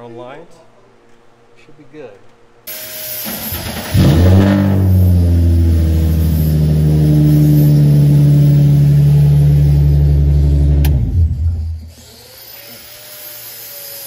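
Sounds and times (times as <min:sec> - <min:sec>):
car engine fast idle: 0:03.2 - 0:11.9.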